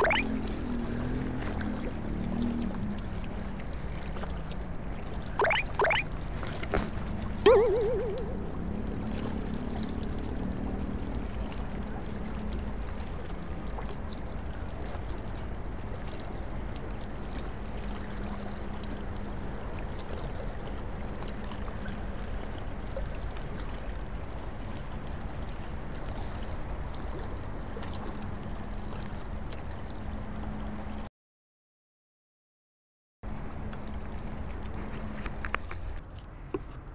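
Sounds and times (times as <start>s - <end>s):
low even hum: 7.5s - 9.1s.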